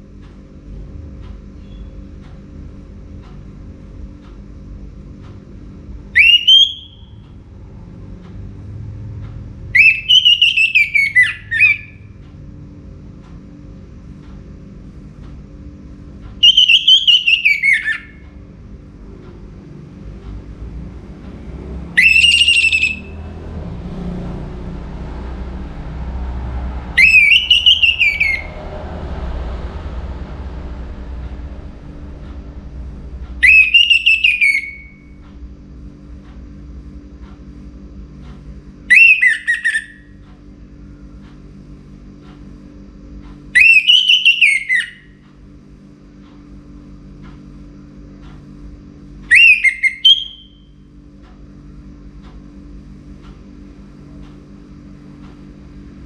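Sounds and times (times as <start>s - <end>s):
low hum and rumble: 0.0s - 56.0s
bird whistling song: 6.1s - 7.2s, 9.7s - 12.1s, 16.4s - 18.2s, 21.9s - 23.3s, 27.0s - 28.6s, 33.4s - 35.2s, 38.9s - 40.2s, 43.6s - 45.2s, 49.3s - 50.8s.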